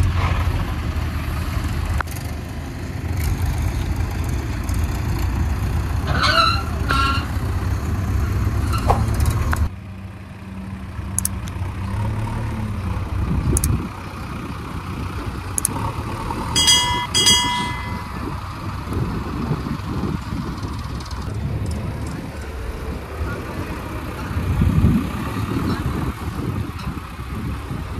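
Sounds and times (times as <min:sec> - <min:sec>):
diesel engine running: 0:00.0 - 0:27.9
tractor engine: 0:00.0 - 0:27.9
short high beeps: 0:16.6 - 0:18.2.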